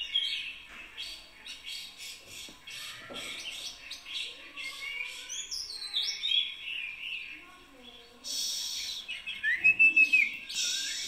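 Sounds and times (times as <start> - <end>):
small birds chirping: 0.0 - 11.0
falling whistled bird calls: 8.2 - 11.0.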